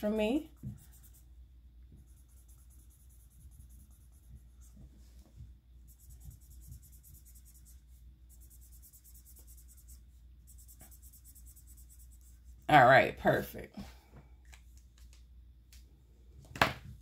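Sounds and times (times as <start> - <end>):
scribbling on paper: 0.4 - 4.9, 5.8 - 12.7.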